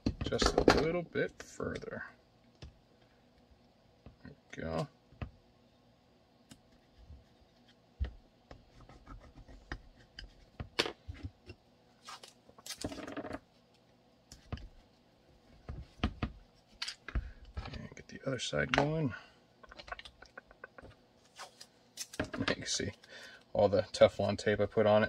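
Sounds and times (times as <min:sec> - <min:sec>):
plastic parts clicking: 0:19.6 - 0:20.9.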